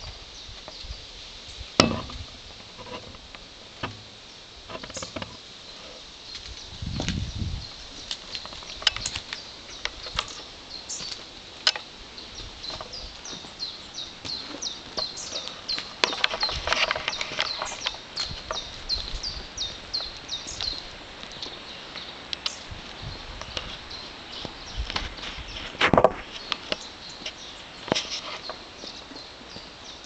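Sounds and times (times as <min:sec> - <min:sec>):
clicks and scuffs near microphone: 0:08.0 - 0:11.9, 0:14.2 - 0:29.7.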